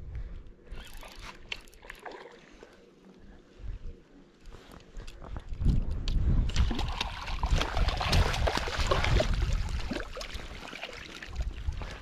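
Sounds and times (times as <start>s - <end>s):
water splashing and sloshing: 0.8s - 2.9s, 6.1s - 12.0s.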